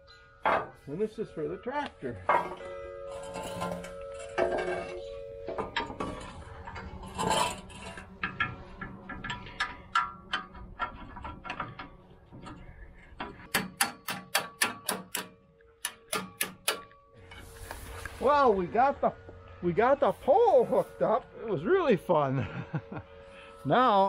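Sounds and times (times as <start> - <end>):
metal clinks and knocks: 0.4 - 1.0, 1.7 - 17.4
sharp metallic clicks: 13.4 - 17.0.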